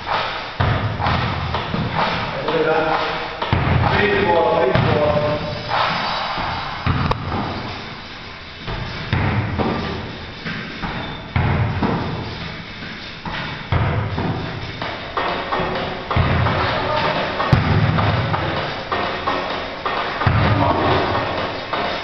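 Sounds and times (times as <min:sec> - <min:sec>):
music playing: 0:00.0 - 0:11.3, 0:12.0 - 0:22.0
feet thudding on trampoline: 0:08.6 - 0:22.0.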